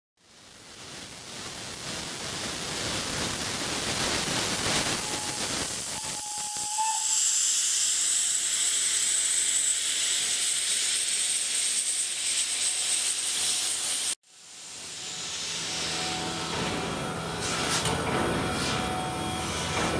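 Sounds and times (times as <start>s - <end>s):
steam locomotive hissing steam: 0.3s - 19.9s.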